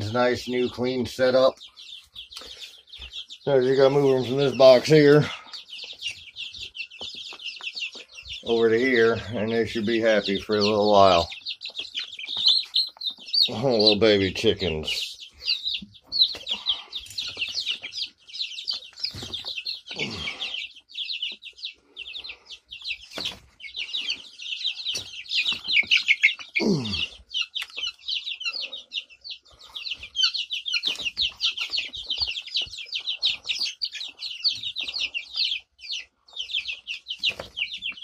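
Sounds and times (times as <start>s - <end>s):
chicks peeping: 0.0s - 38.0s.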